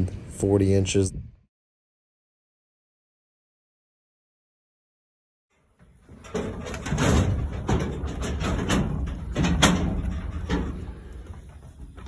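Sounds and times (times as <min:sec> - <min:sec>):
hooves knocking and scraping: 0:05.5 - 0:12.0
knocks and rattles on trailer sides: 0:05.8 - 0:12.0.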